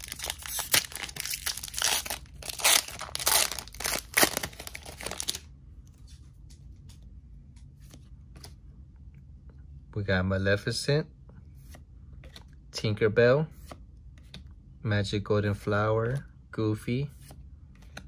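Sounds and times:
foil wrapper tearing and crinkling: 0.0 - 5.4.

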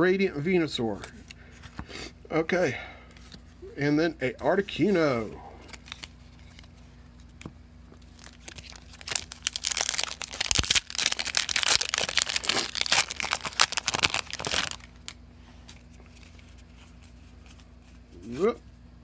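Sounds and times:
foil wrapper crinkling and tearing: 5.7 - 6.7, 8.0 - 15.2.

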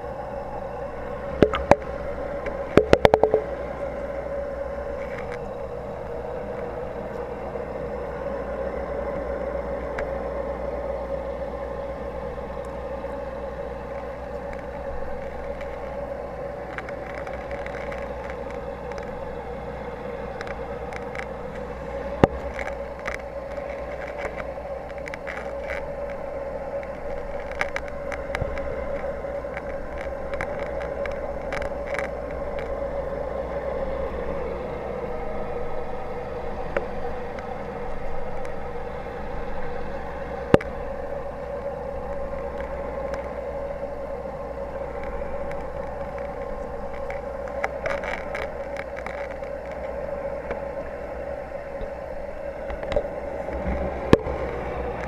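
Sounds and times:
aquarium pump humming: 0.0 - 55.0
faint clicks: 12.4 - 55.0.

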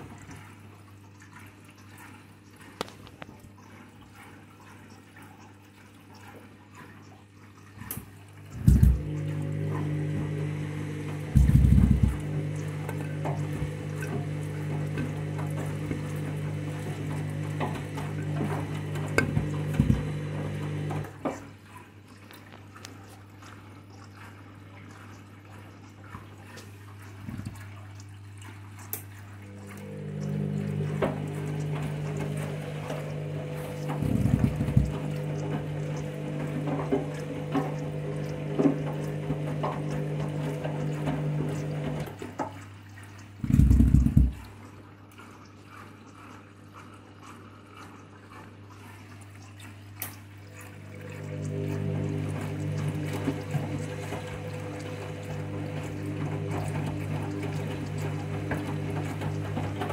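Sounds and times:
water swishing in washing machine drum: 0.0 - 59.9
low machine hum: 8.3 - 21.2, 29.2 - 42.3, 50.3 - 59.9.

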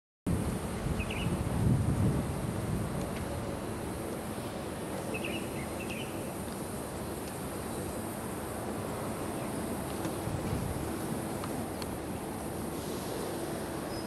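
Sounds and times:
outdoor background noise: 0.3 - 14.0
bird chirps: 5.1 - 6.2.

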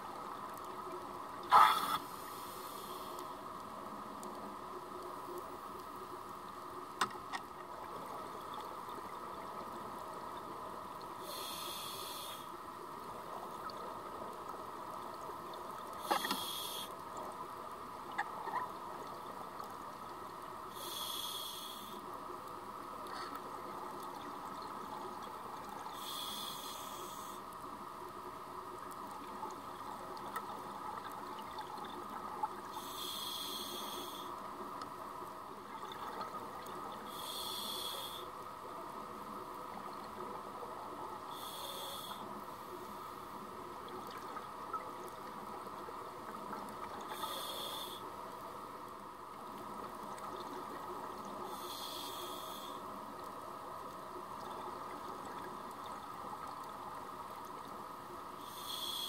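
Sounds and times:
exhaled bubbles hissing: 1.4 - 3.3, 11.2 - 12.6, 16.0 - 17.0, 24.2 - 27.4, 30.8 - 34.3, 35.7 - 38.3, 41.2 - 42.3, 46.4 - 48.0, 50.0 - 53.3, 58.4 - 59.0
muffled underwater hum: 11.2 - 12.6, 15.8 - 17.0, 20.6 - 23.9, 24.8 - 28.8, 32.2 - 35.5, 36.8 - 43.4, 44.3 - 48.9, 50.6 - 54.0, 58.3 - 59.0.

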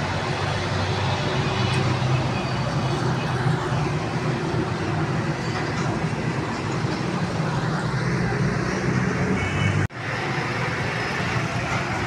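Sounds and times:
motor-rickshaws passing: 0.0 - 12.0
trucks passing: 0.0 - 12.0.

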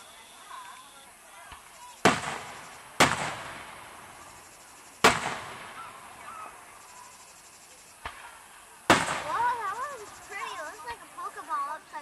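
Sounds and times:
fireworks booming: 1.5 - 6.6, 8.0 - 10.2.

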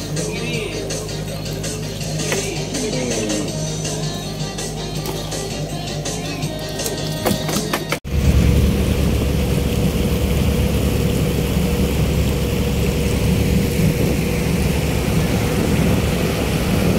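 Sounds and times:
boat engine droning: 0.0 - 7.2, 8.0 - 16.9
water rushing past boat: 8.1 - 16.9.

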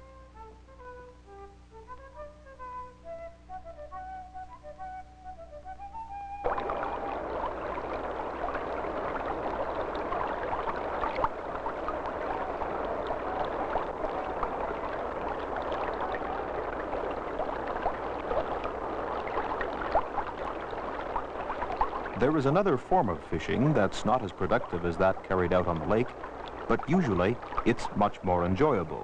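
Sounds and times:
creek water rushing: 6.4 - 29.0
water splashing and gurgling: 6.4 - 29.0.

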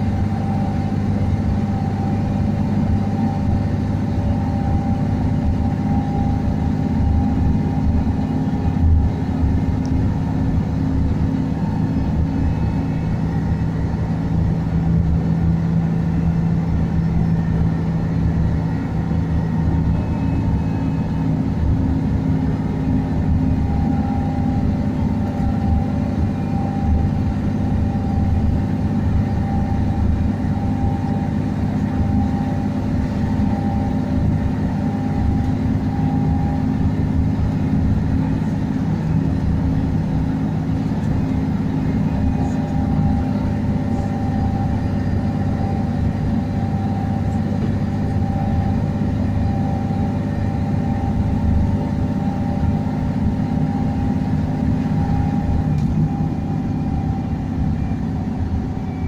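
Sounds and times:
bus engine humming: 0.0 - 59.0
road noise: 0.0 - 59.0.

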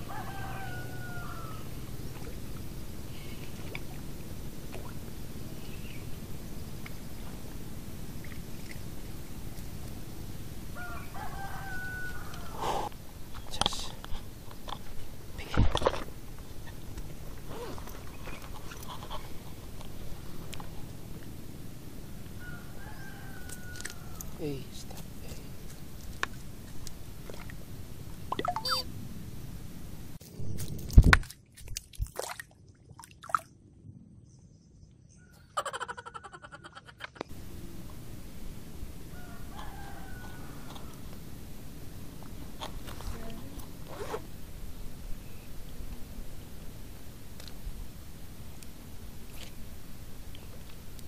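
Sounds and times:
rooster crowing: 0.0 - 1.8, 10.8 - 12.6, 22.4 - 24.4, 39.0 - 41.1
water dripping: 28.3 - 28.8
splash into shallow water: 31.0 - 33.5.

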